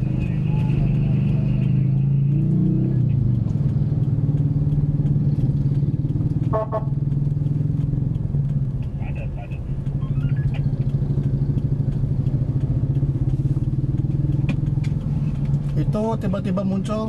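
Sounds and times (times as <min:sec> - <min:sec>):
car engine low drone: 0:00.0 - 0:17.0
car horn toot: 0:06.5 - 0:07.0.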